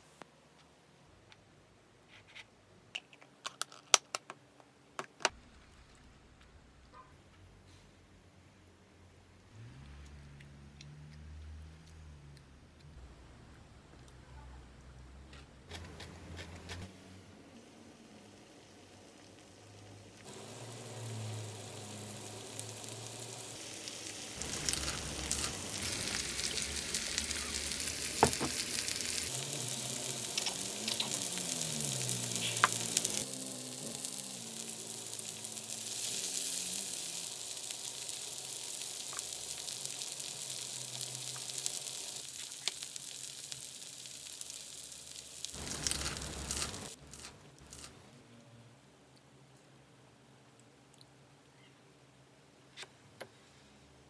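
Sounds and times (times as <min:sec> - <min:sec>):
pork sizzling on a grill pan: 0:17.6 - 0:48.0.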